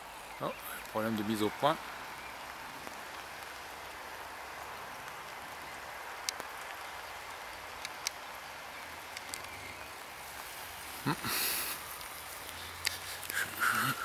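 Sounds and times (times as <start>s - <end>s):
faint clicks: 6.2s - 6.9s, 7.7s - 8.3s, 9.1s - 9.8s, 11.7s - 13.9s.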